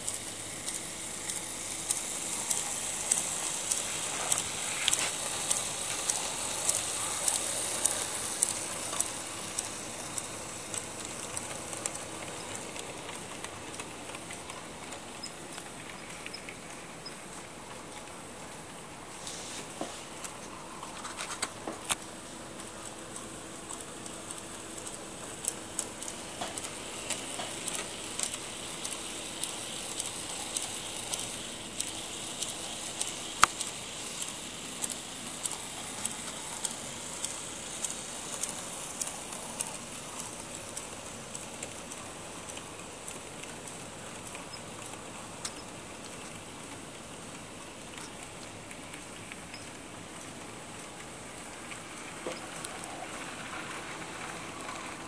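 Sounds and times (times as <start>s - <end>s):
model train motor whir: 0.0s - 16.6s, 23.7s - 46.7s, 50.8s - 55.0s
wheels clicking over track joints: 20.8s - 55.0s.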